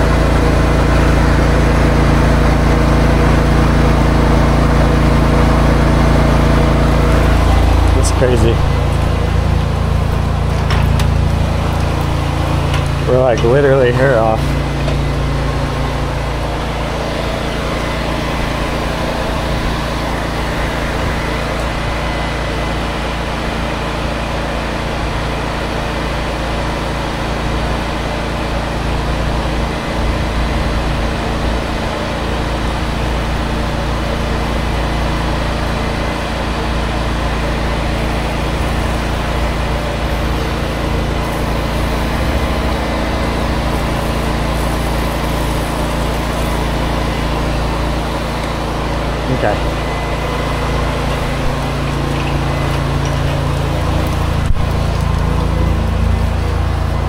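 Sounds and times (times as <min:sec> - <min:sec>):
pressure washer engine running: 0:00.0 - 0:57.0
water spraying hiss: 0:38.0 - 0:48.6.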